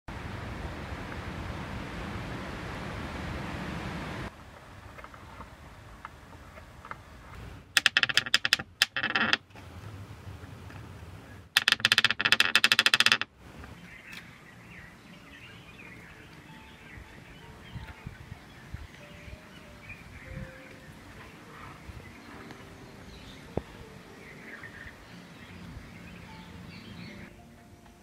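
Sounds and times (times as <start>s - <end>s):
screwdriver turning screws into wood: 7.8s - 9.4s, 11.6s - 13.2s
faint birdsong: 11.2s - 28.0s.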